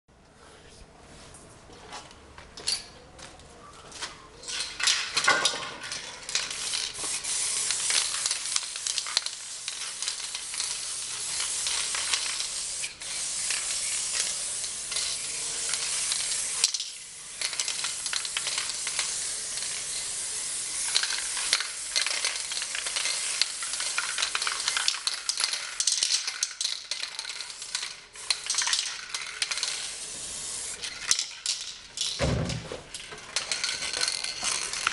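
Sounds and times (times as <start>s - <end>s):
spray-paint can hissing: 6.2s - 31.6s.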